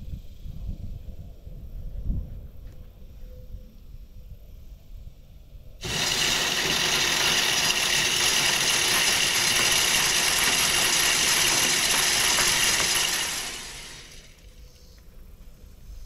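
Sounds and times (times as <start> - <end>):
corn rattling: 5.8 - 14.5
feeder spinner motor running: 5.8 - 15.0.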